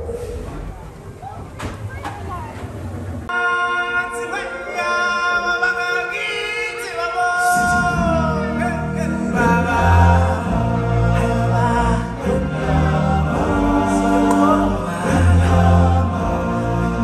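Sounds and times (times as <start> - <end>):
choir singing: 3.3 - 17.0
bass: 7.0 - 17.0.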